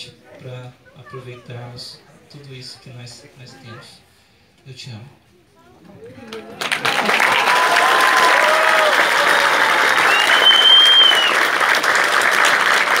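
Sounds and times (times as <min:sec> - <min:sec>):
crowd applauding and cheering: 0:06.2 - 0:13.0
long high whistle: 0:09.9 - 0:11.5.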